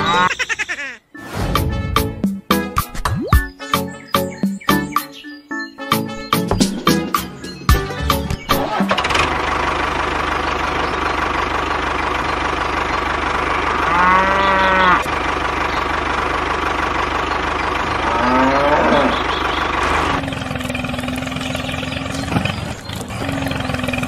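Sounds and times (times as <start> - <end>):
farm animal calling: 0.0 - 1.1, 13.6 - 15.9, 17.4 - 24.0
engine chugging: 6.2 - 24.0.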